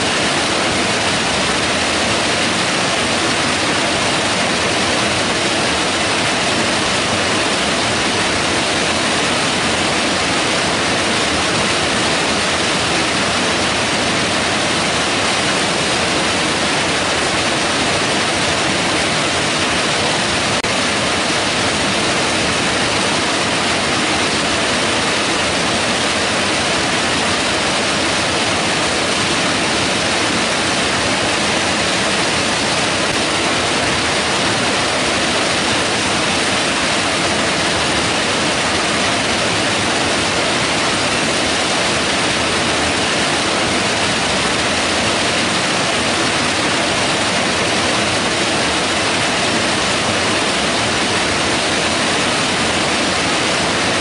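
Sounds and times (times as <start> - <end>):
creek rushing over boulders: 0.0 - 54.0.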